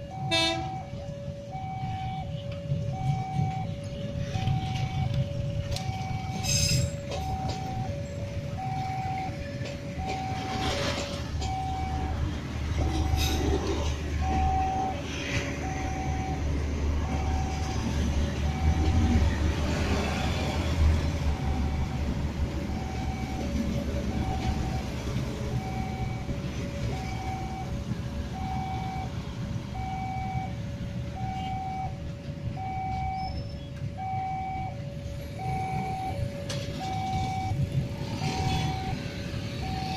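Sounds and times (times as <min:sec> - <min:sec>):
train rumble: 0:00.0 - 0:39.9
level crossing two-tone alarm: 0:14.2 - 0:16.5, 0:24.1 - 0:30.6, 0:32.6 - 0:33.3, 0:33.9 - 0:39.9.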